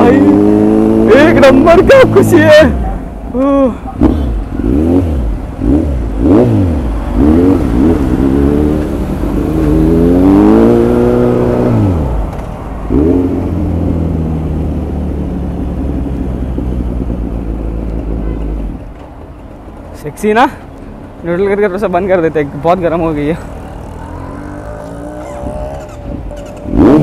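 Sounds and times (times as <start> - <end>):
motorcycle engine revving: 0.0 - 3.1, 3.9 - 18.4, 23.4 - 27.0.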